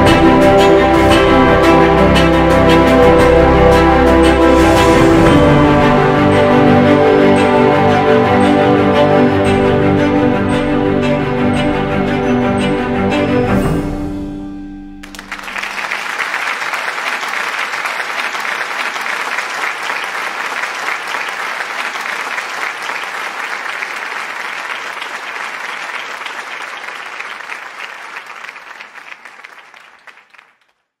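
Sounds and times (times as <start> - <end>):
crowd applauding: 15.0 - 30.8.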